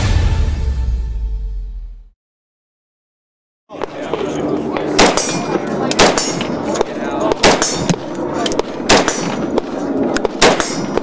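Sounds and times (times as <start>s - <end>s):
rifle gunshots: 4.8s - 11.0s.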